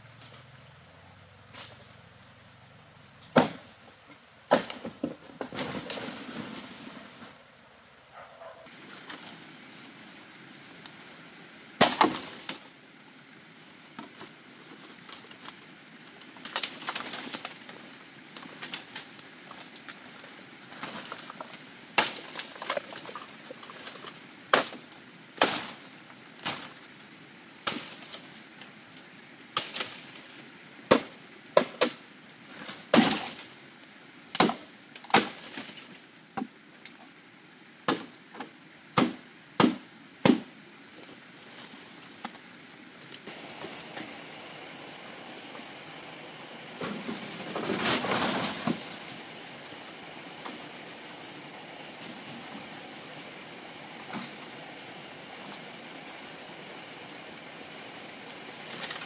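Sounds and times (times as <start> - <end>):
bamboo being chopped: 11.8 - 12.6, 22.0 - 22.8, 24.5 - 24.8, 27.7 - 28.2, 30.9 - 32.0, 32.8 - 33.4, 34.4 - 35.8, 37.9 - 40.5.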